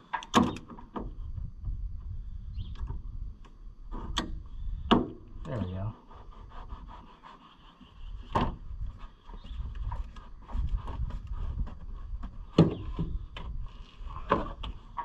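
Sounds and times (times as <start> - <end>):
sharp knocks and clunks: 3.9 - 5.3, 8.2 - 8.6, 9.3 - 13.6, 14.2 - 15.0.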